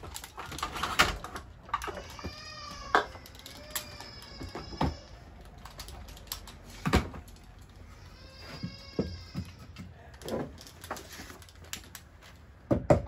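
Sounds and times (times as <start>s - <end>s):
hammer knocking wood block: 12.7s - 13.0s.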